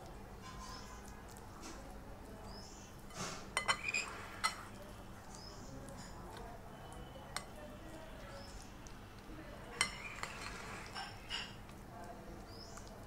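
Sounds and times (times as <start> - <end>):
metal spoon clinking against bowl: 3.6 - 4.7, 9.8 - 11.6.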